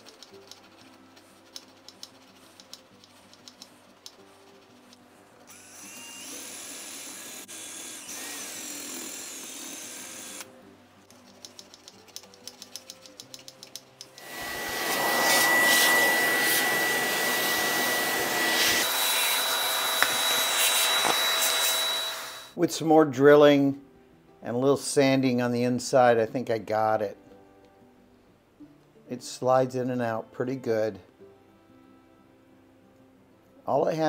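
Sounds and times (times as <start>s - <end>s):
electric drill drilling metal: 5.5s - 10.5s, 14.2s - 22.6s.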